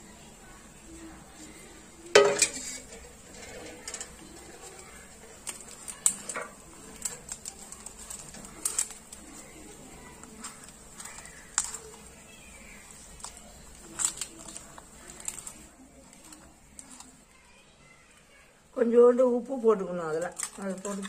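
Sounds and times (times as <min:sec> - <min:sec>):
spatula scraping metal bowl: 0:02.2 - 0:05.4.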